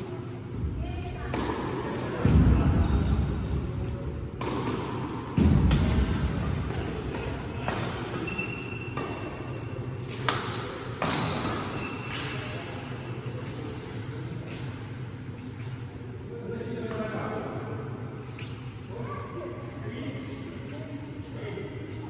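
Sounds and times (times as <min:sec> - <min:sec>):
low hum of hall: 0:00.0 - 0:22.0
rackets hitting shuttlecock: 0:01.3 - 0:02.4, 0:04.4 - 0:12.4
shoes squeaking on floor: 0:06.5 - 0:12.4, 0:13.3 - 0:14.2.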